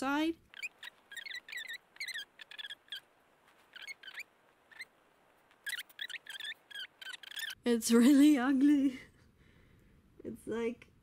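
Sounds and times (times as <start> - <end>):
solder flux sizzling and crackling: 0.0 - 7.6.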